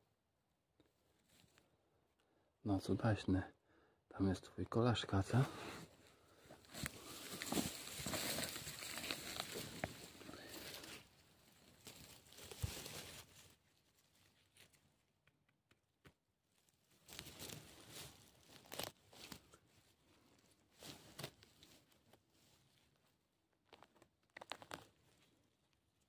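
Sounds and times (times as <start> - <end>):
undergrowth rustling and crackling: 5.8 - 14.8, 16.8 - 23.0, 23.6 - 25.3.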